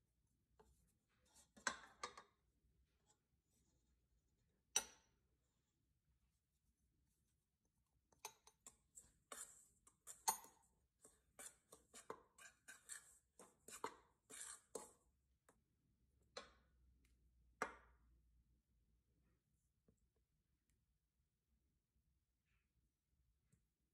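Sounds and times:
utensil scraping metal bowl: 0:08.6 - 0:15.1.

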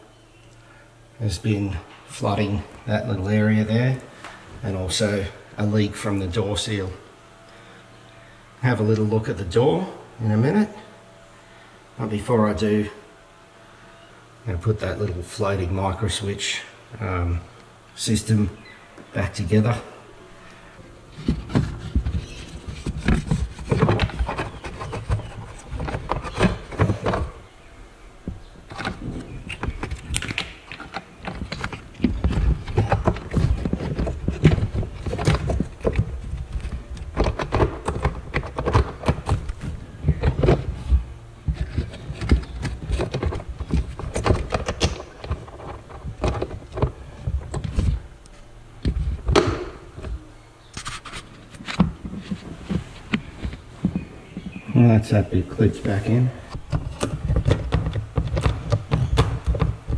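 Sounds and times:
plastic parts knocking and clicking: 0:21.1 - 0:27.4, 0:28.2 - 0:48.0, 0:48.8 - 0:50.2, 0:56.5 - 0:59.9.

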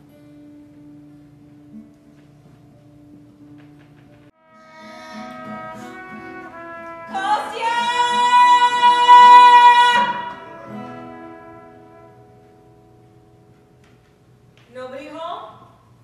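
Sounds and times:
loud held high note: 0:04.4 - 0:12.4.

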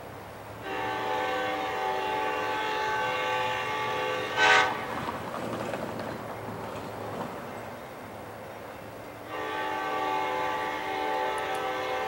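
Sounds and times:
locomotive air horn: 0:00.6 - 0:05.0, 0:09.2 - 0:12.0.

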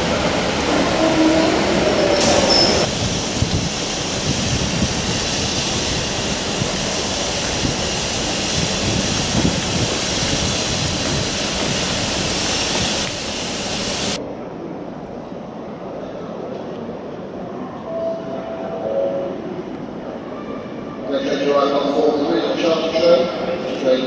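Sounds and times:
steam hissing: 0:01.9 - 0:14.2.

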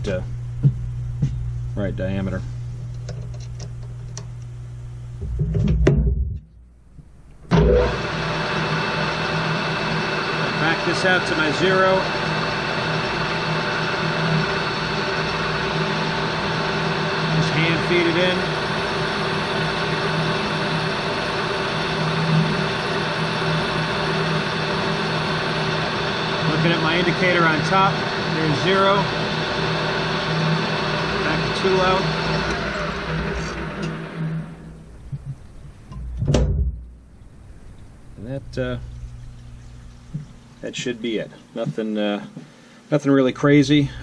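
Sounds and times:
lathe motor humming: 0:07.5 - 0:36.1.

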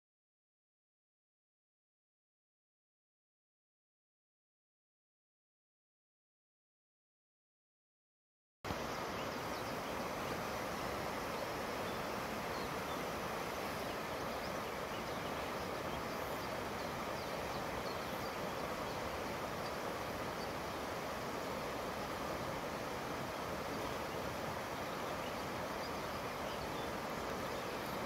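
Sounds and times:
river flowing over stones: 0:08.7 - 0:28.0.

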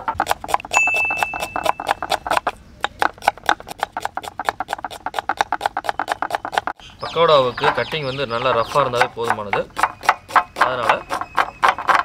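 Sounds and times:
knife chopping on wooden block: 0:00.0 - 0:06.8, 0:08.4 - 0:12.0.

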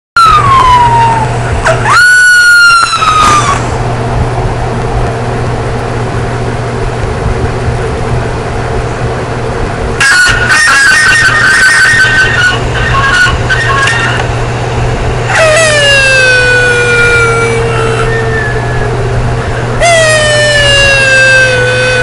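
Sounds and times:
puppy whining and yelping: 0:00.2 - 0:03.8, 0:15.3 - 0:19.0
steady low hum: 0:00.2 - 0:22.0.

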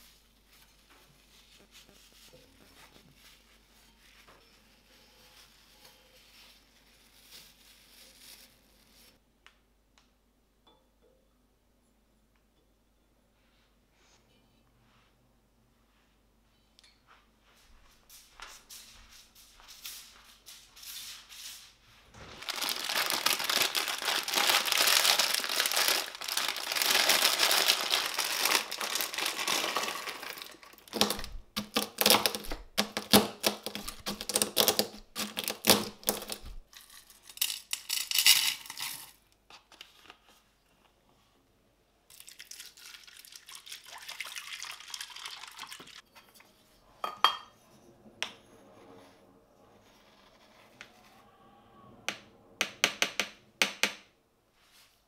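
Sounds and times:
scratchy rustling: 0:18.2 - 0:37.1.

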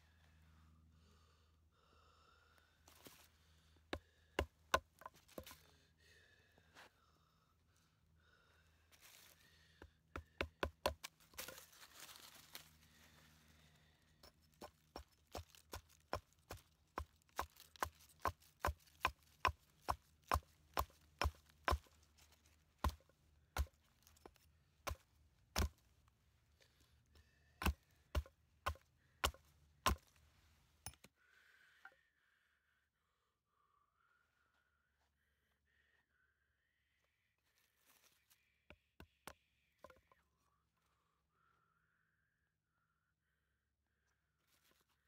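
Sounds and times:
blade chopping wood: 0:10.2 - 0:11.5, 0:14.2 - 0:22.0, 0:22.8 - 0:23.0, 0:23.6 - 0:25.8, 0:27.6 - 0:30.1.

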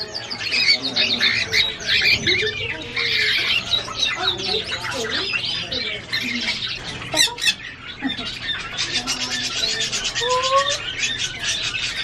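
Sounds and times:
parrots squawking and chattering: 0:00.0 - 0:12.0.

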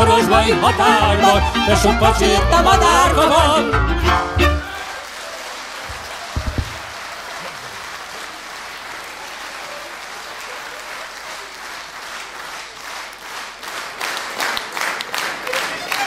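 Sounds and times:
audience applauding: 0:04.6 - 0:16.0
short low thumps: 0:05.9 - 0:07.0.

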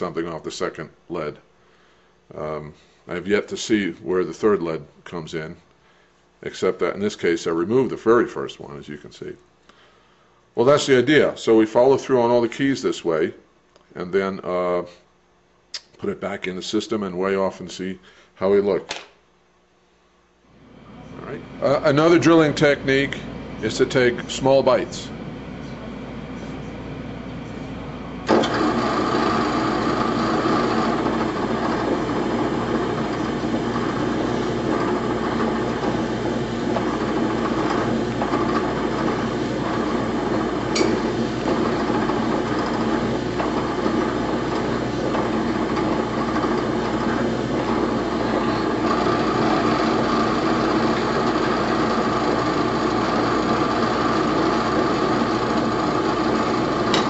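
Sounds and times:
electric drill whining: 0:28.3 - 0:57.0.

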